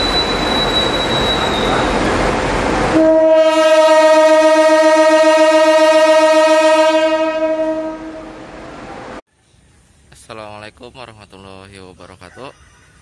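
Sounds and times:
locomotive horn blast: 0:02.9 - 0:08.8.

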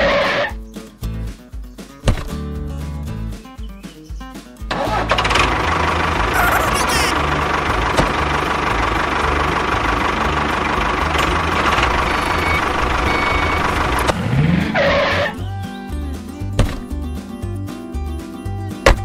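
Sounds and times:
tractor engine running: 0:04.7 - 0:18.2.

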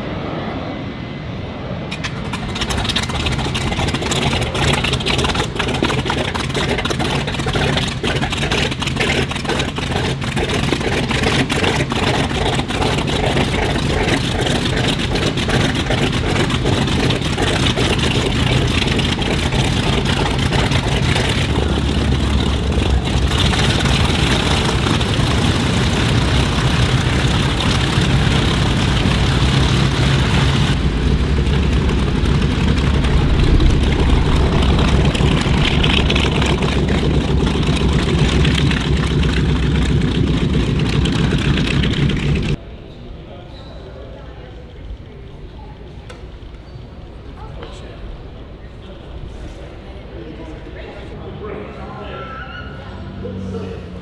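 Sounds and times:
radial aircraft engines running: 0:00.0 - 0:42.6.

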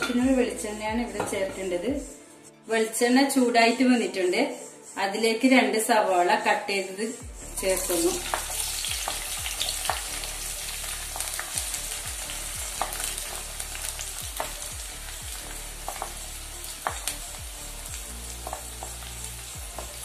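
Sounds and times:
onions sizzling in a pan: 0:07.6 - 0:20.0.

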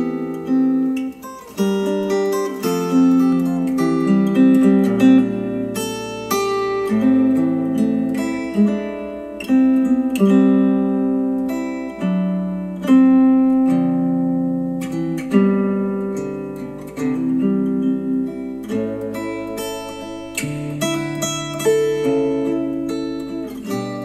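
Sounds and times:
acoustic guitar music through speakers: 0:00.0 - 0:24.0.

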